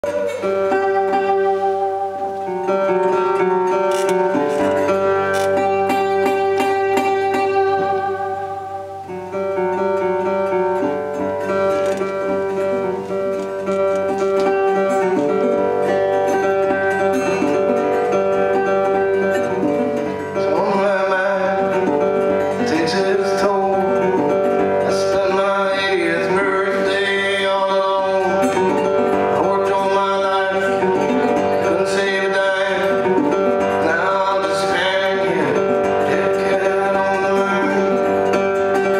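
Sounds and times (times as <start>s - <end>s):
acoustic guitar picking: 0.0s - 38.9s
man singing: 18.6s - 38.9s.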